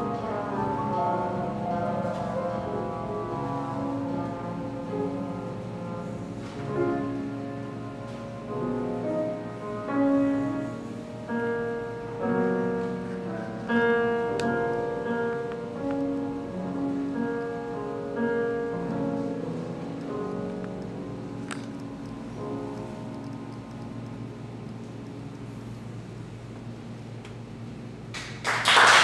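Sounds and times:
held trumpet notes: 0.0s - 21.7s
piano: 0.0s - 29.0s.

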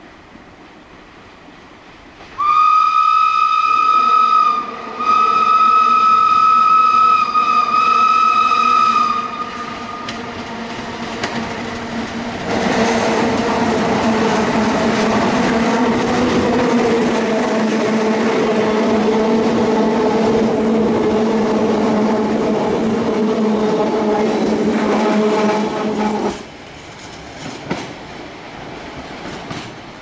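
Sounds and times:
steam locomotive working past: 0.6s - 30.0s
steam locomotive whistle: 2.4s - 10.3s, 20.9s - 26.4s.

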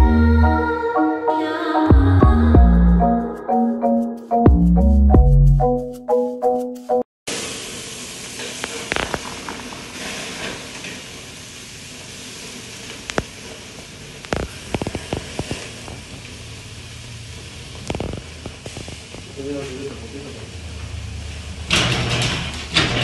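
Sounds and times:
marimba jingle: 0.0s - 7.0s
burgers sizzling on a grill: 7.3s - 23.0s
fat popping and crackling: 8.5s - 9.7s, 12.9s - 13.6s, 14.2s - 16.3s, 17.8s - 19.4s.

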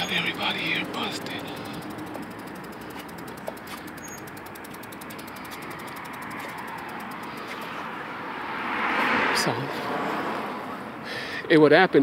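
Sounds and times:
bicycle freewheel ticking: 0.0s - 8.6s
street noise hiss: 0.0s - 12.0s.

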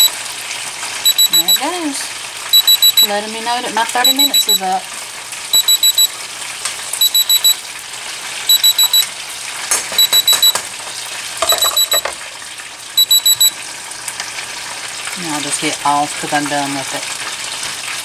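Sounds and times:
okra sizzling in a pan: 0.1s - 1.0s, 4.6s - 5.5s, 12.1s - 15.2s, 15.8s - 18.0s
high-pitched timer beeps: 1.0s - 1.7s, 2.5s - 3.1s, 4.0s - 4.6s, 5.5s - 6.1s, 7.0s - 7.6s, 8.5s - 9.1s, 10.0s - 10.6s, 11.4s - 12.1s, 13.0s - 13.5s.

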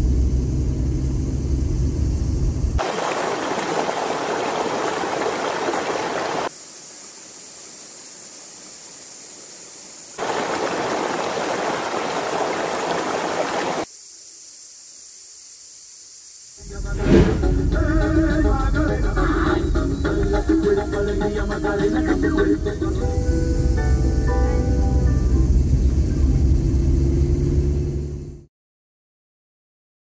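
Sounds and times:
road rumble: 0.0s - 2.8s, 23.6s - 28.4s
stream rushing: 2.8s - 6.5s, 10.2s - 13.9s
steady high hiss: 2.8s - 25.8s
car engine: 25.4s - 28.4s.

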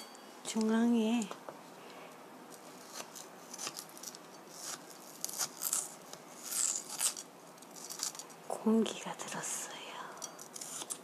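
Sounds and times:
knife slicing potato on board: 2.8s - 3.9s.

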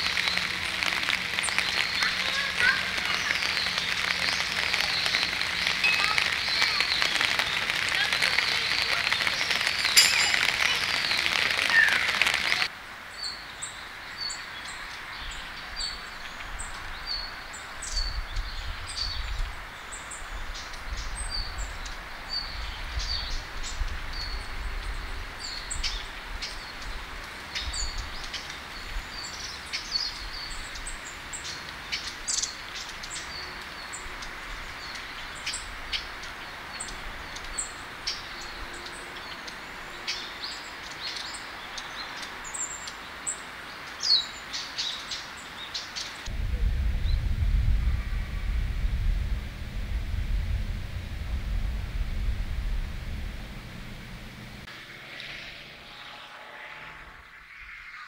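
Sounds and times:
small birds chirping: 0.0s - 46.3s
low rumble: 46.3s - 54.7s.

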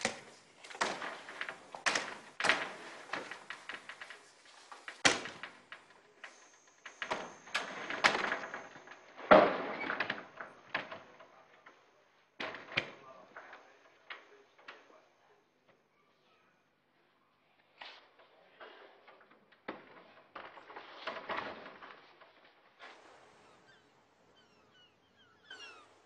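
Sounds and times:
knocks and clatters: 0.0s - 14.9s, 18.2s - 23.7s.

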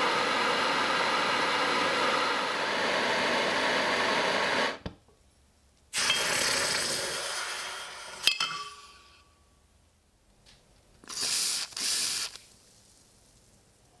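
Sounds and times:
gas torch hissing: 0.0s - 4.8s, 5.9s - 8.3s, 11.0s - 13.2s
hot iron sizzling in liquid: 0.0s - 4.8s, 5.9s - 9.0s, 11.0s - 13.8s
iron clinking against glass: 8.2s - 9.2s.

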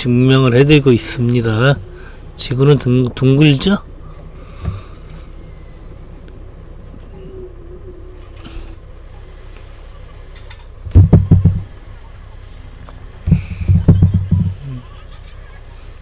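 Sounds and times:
forklift engine hum: 0.0s - 16.0s.

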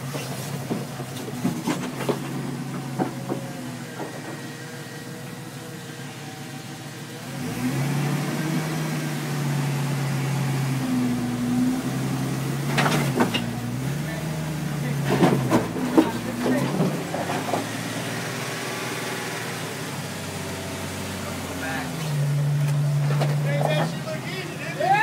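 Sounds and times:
engine running at low revs: 0.0s - 25.0s.

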